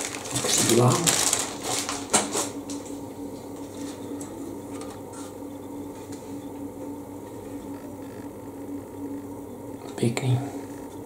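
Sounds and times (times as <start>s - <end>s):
cellophane bag crinkling: 0.0s - 2.9s
steady low hum: 0.0s - 11.0s.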